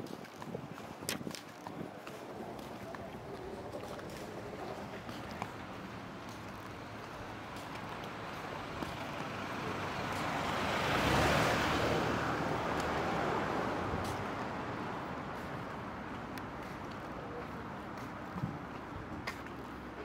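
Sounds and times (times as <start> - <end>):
vehicle driving past: 9.3 - 14.4.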